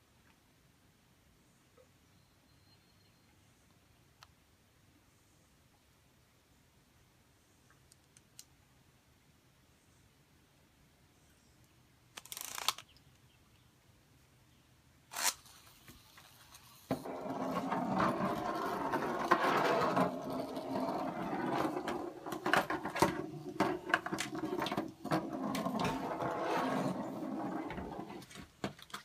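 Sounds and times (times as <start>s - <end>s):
plastic ripcord rasp: 12.2s - 12.8s, 15.1s - 16.8s
spinning top rattling on wood: 15.9s - 28.1s.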